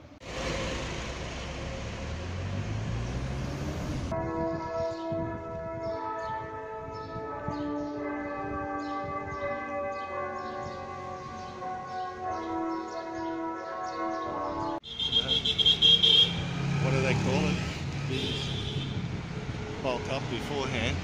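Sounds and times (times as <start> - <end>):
church bells ringing: 4.2 - 14.8.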